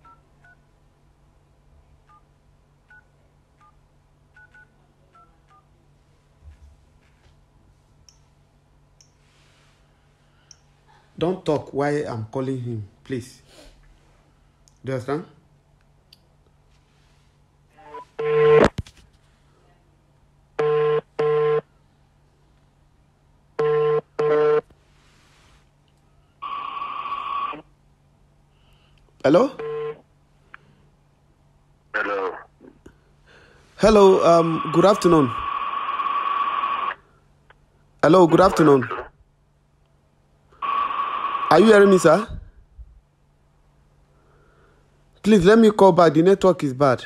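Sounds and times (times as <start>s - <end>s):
phone ringback tone: 20.6s - 21.6s, 23.6s - 24.6s.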